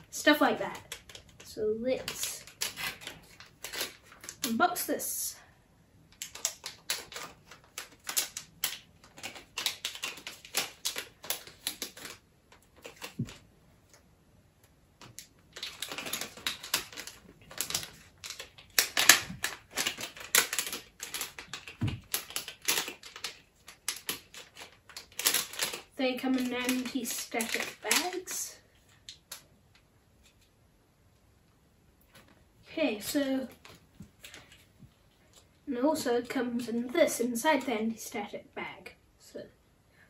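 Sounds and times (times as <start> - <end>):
plastic packaging crinkling: 0.7 - 4.6, 6.1 - 13.4, 15.0 - 29.4.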